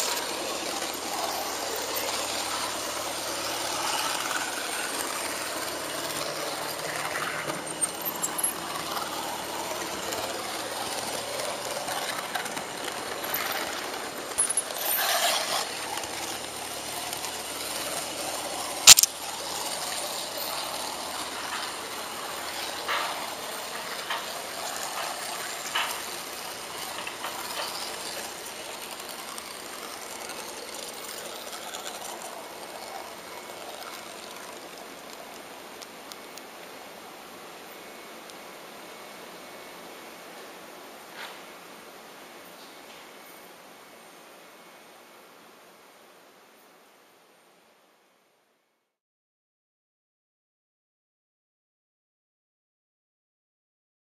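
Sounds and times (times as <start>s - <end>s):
model train wheels rattling: 0.0s - 36.5s
sharp crack: 17.9s - 19.2s
sharp clicks: 18.9s - 19.1s.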